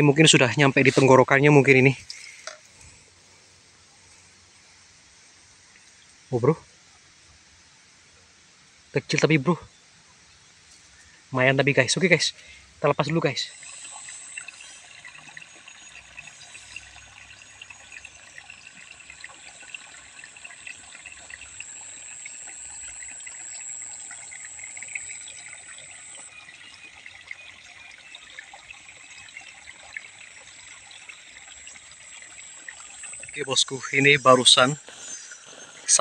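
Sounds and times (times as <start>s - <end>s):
water trickling: 0.0s - 7.2s, 10.2s - 36.0s
high-pitched tone: 12.9s - 26.4s, 32.2s - 36.0s.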